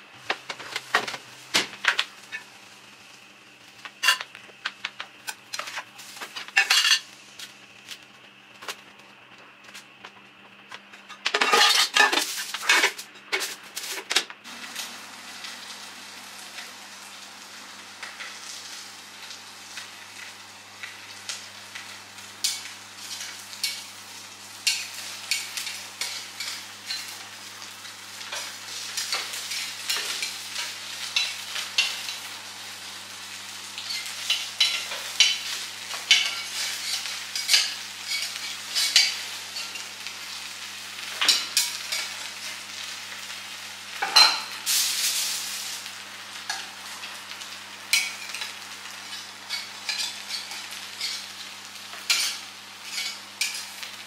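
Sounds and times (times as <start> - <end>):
food frying: 0.0 - 9.3, 11.3 - 54.0
utensil scraping in a pan: 33.8 - 39.9, 47.9 - 51.3, 52.0 - 53.7.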